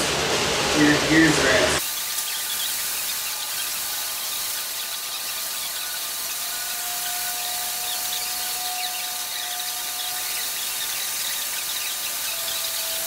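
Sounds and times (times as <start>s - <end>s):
steady hiss: 0.0s - 13.0s
faint thin squeal: 2.2s - 13.0s.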